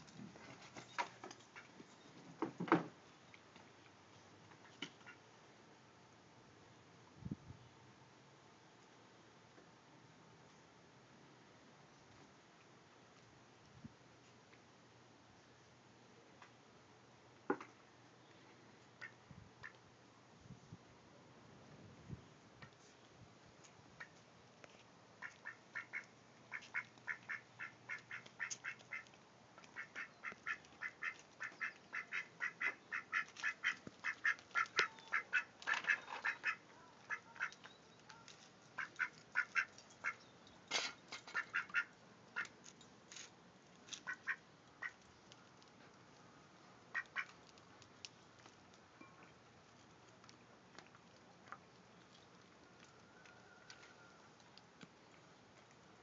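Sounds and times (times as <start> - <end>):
duck quacking: 25.2 - 29.1, 29.8 - 37.6, 38.8 - 40.2, 41.4 - 42.5, 44.0 - 45.0, 46.9 - 47.3.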